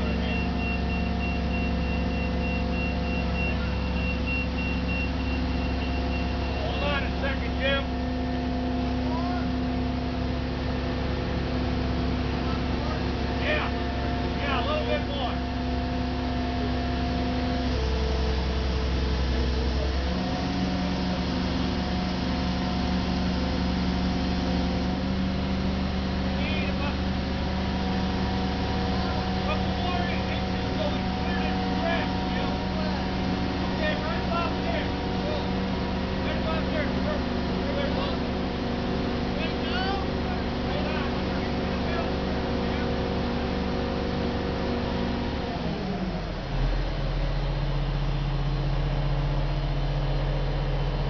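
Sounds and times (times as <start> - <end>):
crane diesel engine running: 0.0 - 51.0
high warning beeps: 0.1 - 6.8.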